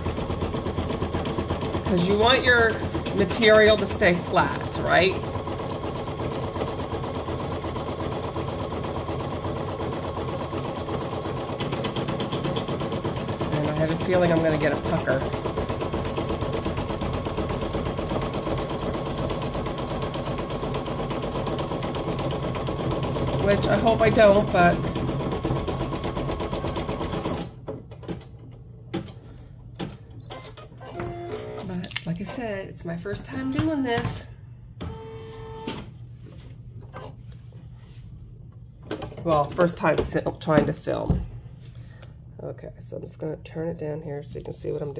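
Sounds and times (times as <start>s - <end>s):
embroidery machine stitching: 0.0s - 29.1s.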